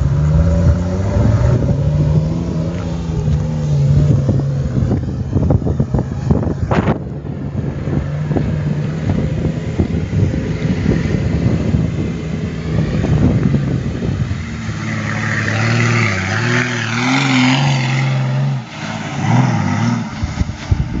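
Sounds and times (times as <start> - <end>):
off-road vehicle engine revving: 0.0 - 21.0.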